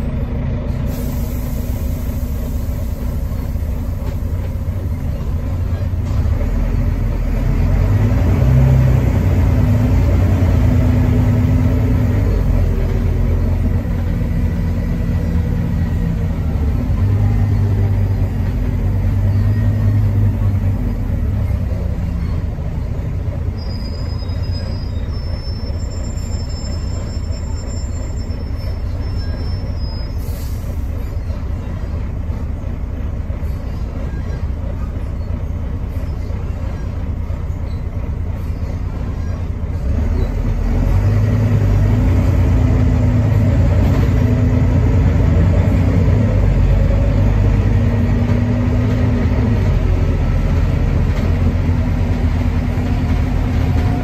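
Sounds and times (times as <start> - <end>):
bus diesel engine under load: 0.0 - 54.0
faint high-pitched squeal: 19.0 - 31.7.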